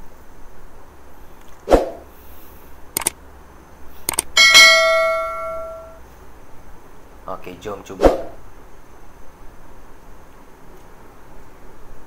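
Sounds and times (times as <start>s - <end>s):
sharp mouse clicks: 3.0s - 3.2s, 4.0s - 4.3s
bright bell ding: 4.4s - 6.0s.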